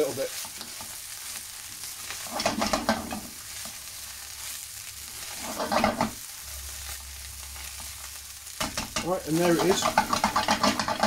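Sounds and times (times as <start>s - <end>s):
utensil scraping through rice: 0.0s - 6.2s, 9.0s - 11.0s
rice sizzling in a pan: 0.0s - 11.0s.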